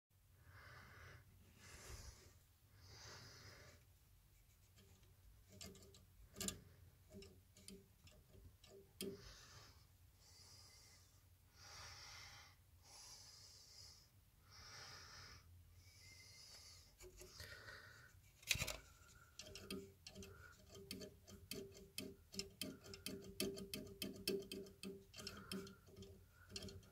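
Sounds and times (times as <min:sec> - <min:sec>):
soft breathing: 0:00.2 - 0:05.8, 0:06.4 - 0:23.3, 0:24.6 - 0:26.9
fan ticking: 0:04.8 - 0:09.5, 0:19.2 - 0:26.9.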